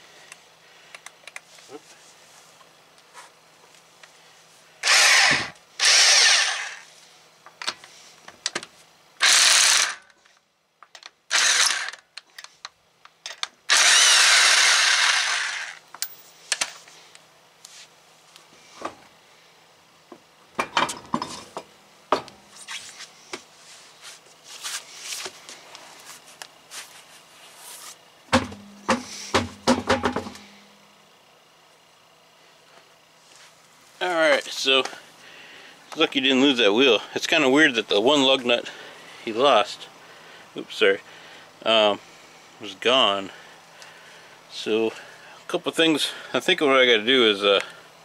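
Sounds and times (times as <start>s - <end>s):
impact wrench hammering: 28.3s - 30.8s.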